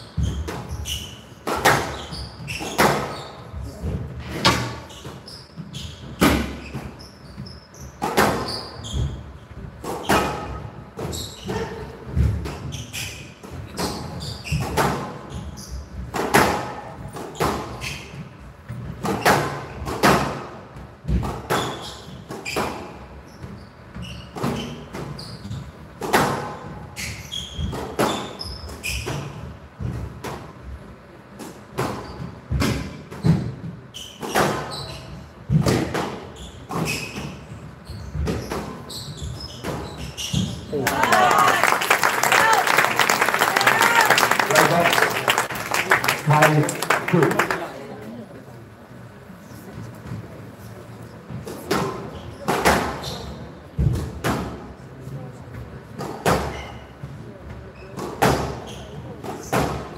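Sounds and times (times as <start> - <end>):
shoes squeaking on court: 0.0 - 16.2, 16.9 - 19.8, 21.5 - 25.9, 26.5 - 29.6, 31.8 - 41.6, 51.1 - 53.6, 56.0 - 59.8.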